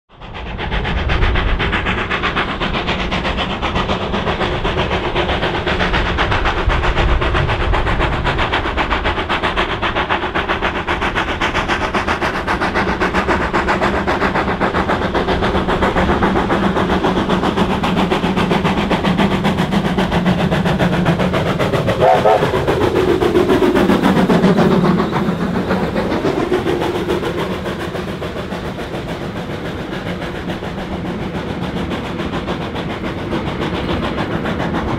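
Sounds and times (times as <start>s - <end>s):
steam locomotive passing: 0.1s - 34.9s.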